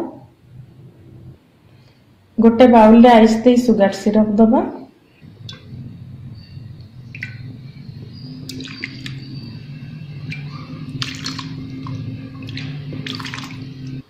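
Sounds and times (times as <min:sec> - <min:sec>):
steady low hum: 0:00.0 - 0:14.0
syrup splashing and dripping: 0:07.0 - 0:14.0.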